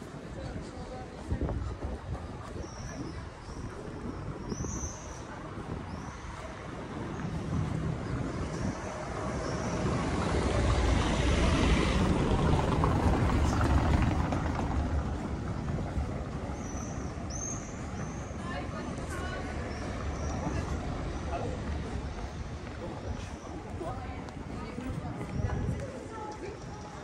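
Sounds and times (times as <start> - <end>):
car driving over cobblestones: 9.0 - 18.2.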